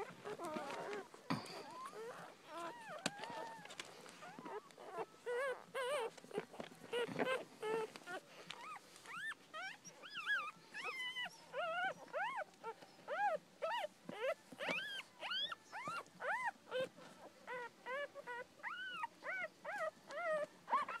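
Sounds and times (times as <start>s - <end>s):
puppies squeaking and whimpering: 0.0s - 21.0s.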